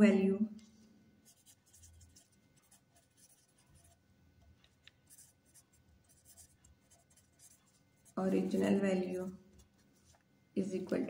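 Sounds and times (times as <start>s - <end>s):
pen scratching while writing: 1.3s - 8.7s.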